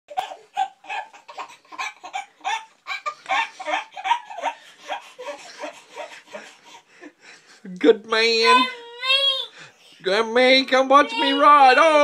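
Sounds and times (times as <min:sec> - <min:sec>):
toddler laughing: 0:00.1 - 0:06.6.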